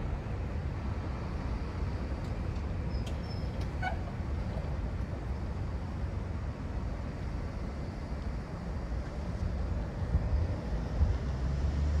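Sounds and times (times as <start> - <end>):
vehicle engines humming: 0.0 - 12.0
wind rumble on microphone: 7.4 - 12.0.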